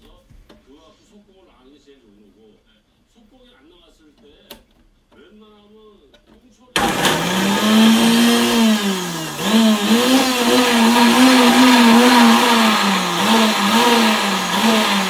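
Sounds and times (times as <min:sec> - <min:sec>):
blender motor chopping: 0:06.8 - 0:15.0.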